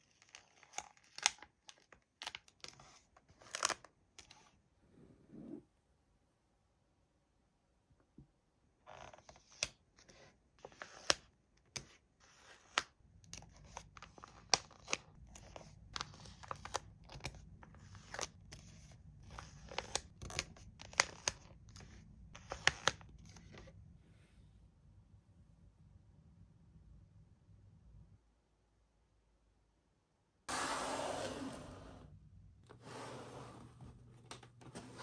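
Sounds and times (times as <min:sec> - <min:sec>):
toys and packaging handled: 0:00.0 - 0:04.6
faint low hum: 0:21.8 - 0:30.4.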